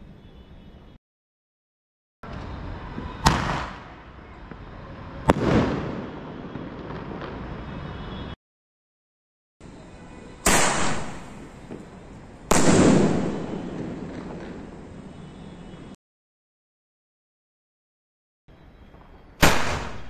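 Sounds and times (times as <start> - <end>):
firework bangs: 3.1 - 4.0, 5.1 - 8.4, 10.4 - 16.0, 19.4 - 20.0.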